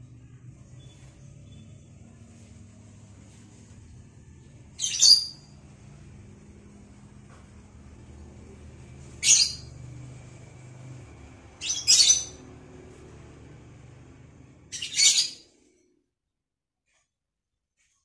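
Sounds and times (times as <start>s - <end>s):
faint low hum: 0.0s - 15.9s
bird shrill calls: 4.8s - 5.5s, 9.2s - 9.7s, 11.6s - 12.4s, 14.7s - 15.4s.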